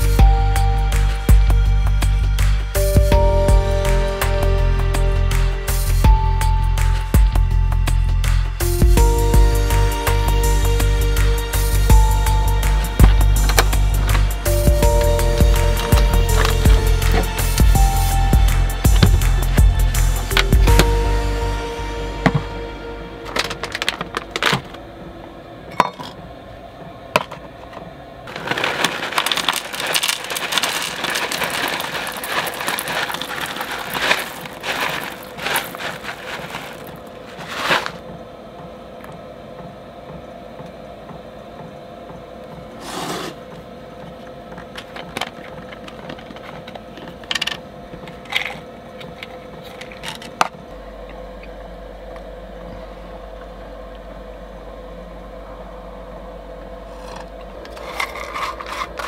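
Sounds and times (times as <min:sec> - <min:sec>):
plastic snack bag crinkling: 0:15.0 - 0:17.2, 0:23.3 - 0:24.8, 0:28.3 - 0:38.0, 0:57.0 - 0:59.0
containers clicking and knocking: 0:28.3 - 0:37.0, 0:57.0 - 0:59.0
granola poured into metal bowl: 0:28.3 - 0:37.0.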